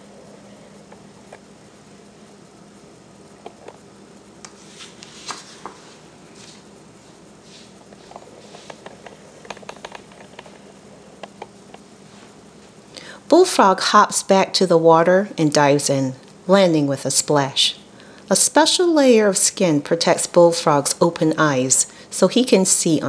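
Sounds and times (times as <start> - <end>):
faint steady hum: 0.0 - 23.0
paper pages rustling: 4.5 - 6.6.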